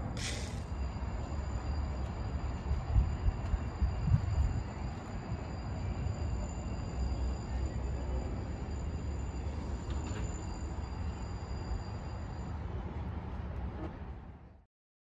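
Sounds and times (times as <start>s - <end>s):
faint high whine: 0.0s - 13.7s
wind rumbling on microphone: 2.8s - 4.7s.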